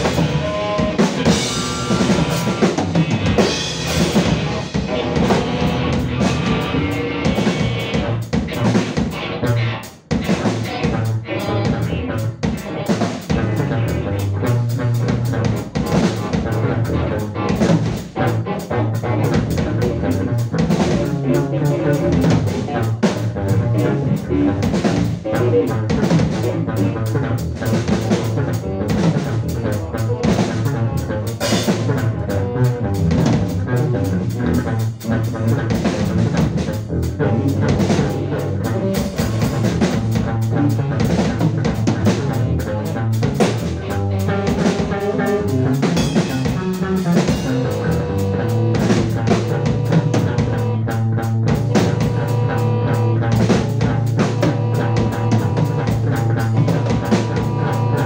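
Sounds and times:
low bass drone: 0.0s - 8.2s, 47.3s - 58.0s
dense drumming: 0.0s - 58.0s.

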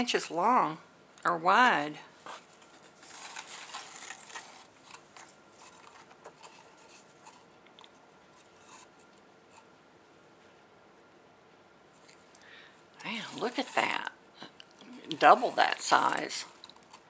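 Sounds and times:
fabric and tissue paper rustling: 2.1s - 7.5s, 13.0s - 14.1s, 15.0s - 17.0s.

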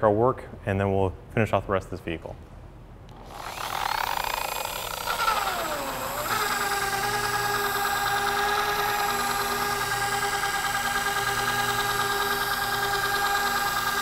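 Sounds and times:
polisher motor whining: 3.1s - 14.0s.

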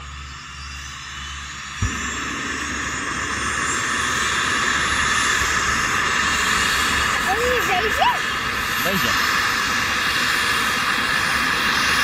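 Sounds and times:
helicopter turbine whine: 0.0s - 12.0s
low rumble: 1.8s - 7.3s.

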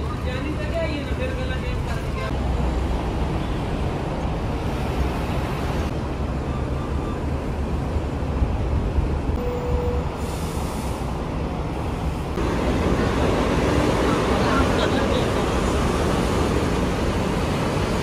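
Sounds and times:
road traffic rumble: 0.0s - 18.0s
short tone: 9.4s - 10.2s.

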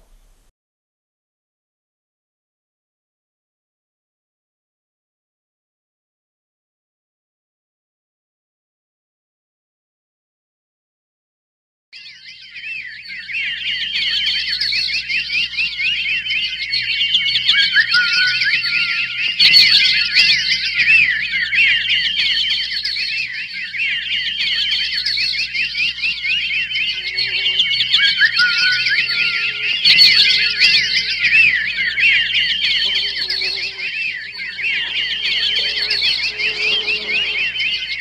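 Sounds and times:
chorus of bird chirps and whistles: 12.0s - 38.0s.

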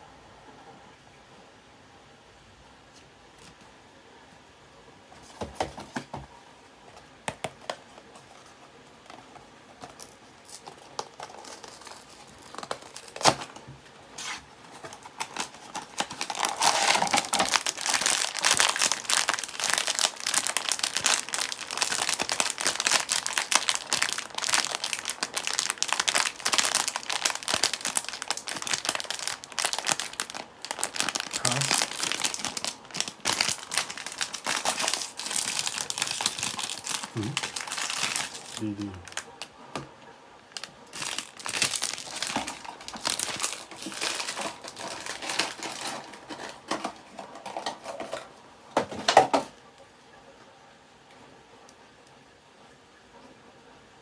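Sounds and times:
foil bag crinkling: 9.0s - 39.5s, 40.5s - 48.2s.

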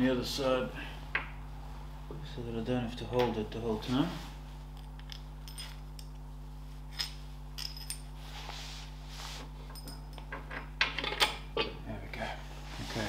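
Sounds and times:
steady low hum: 0.0s - 13.0s
metallic clinks of bolt and washers: 4.9s - 6.2s, 6.9s - 8.1s.

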